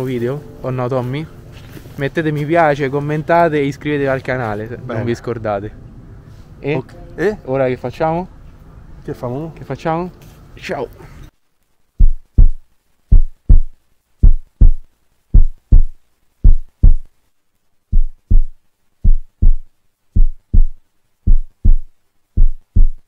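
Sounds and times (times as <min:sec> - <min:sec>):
heartbeat thumps: 0:12.0 - 0:17.1, 0:17.9 - 0:23.0.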